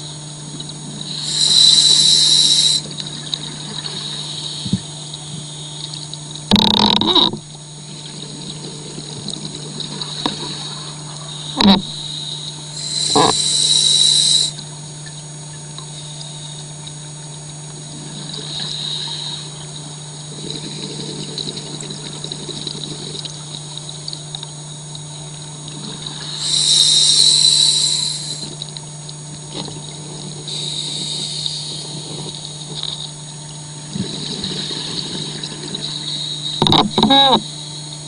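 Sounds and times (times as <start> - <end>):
suction dredge low hum: 0.0 - 38.0
underwater exhaled bubbles: 0.0 - 38.0.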